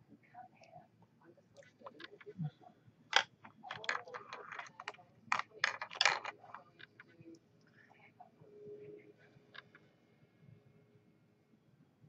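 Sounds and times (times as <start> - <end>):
sharp clicks and clattering rattles: 3.1 - 7.1.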